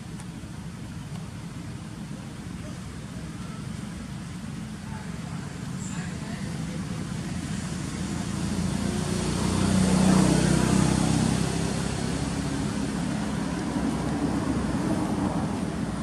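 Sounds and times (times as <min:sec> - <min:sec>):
motor vehicle passing: 0:05.8 - 0:16.0.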